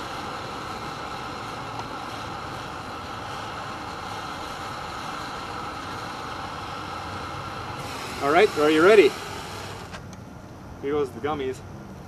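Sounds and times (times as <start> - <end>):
gas torch hissing: 0.0 - 11.3.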